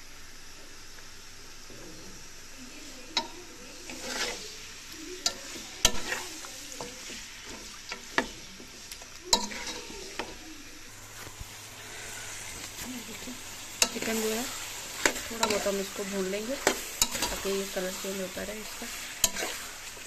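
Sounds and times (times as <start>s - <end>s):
chicken sizzling in oil: 0.0s - 20.0s
steel spoon scraping pan: 3.2s - 8.6s, 9.2s - 10.4s, 13.7s - 20.0s.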